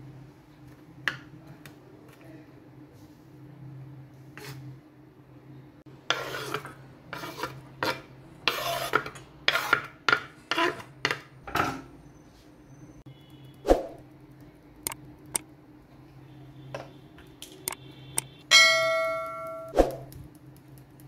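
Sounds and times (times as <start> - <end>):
onion scraped off cutting board: 6.1 - 9.9.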